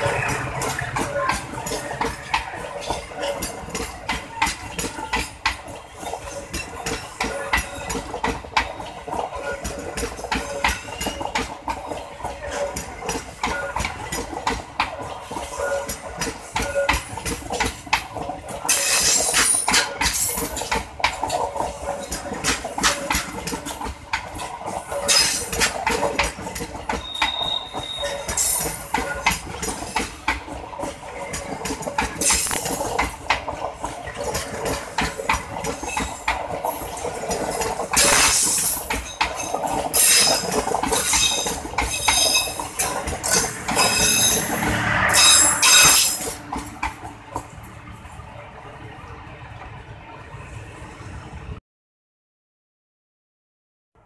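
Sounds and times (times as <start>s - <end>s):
train wheels clattering: 0.0s - 47.8s
wheel squeals: 8.7s - 11.5s, 26.9s - 30.4s, 31.3s - 33.5s, 34.6s - 46.6s.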